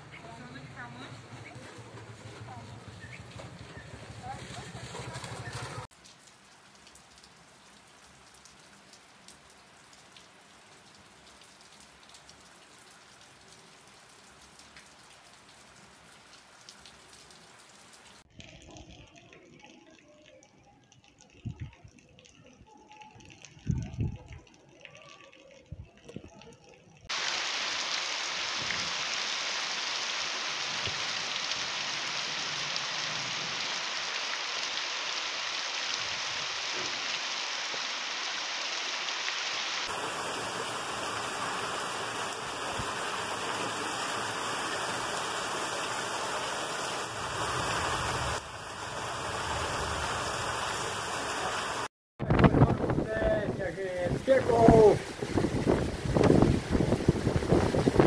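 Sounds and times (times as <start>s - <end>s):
rain on a tile roof: 0.0s - 58.0s
heavy rain hiss: 27.1s - 58.0s.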